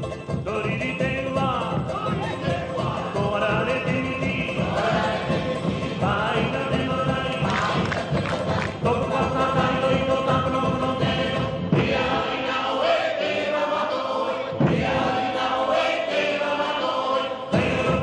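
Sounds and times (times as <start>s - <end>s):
chorus of voices chanting: 4.3s - 18.0s.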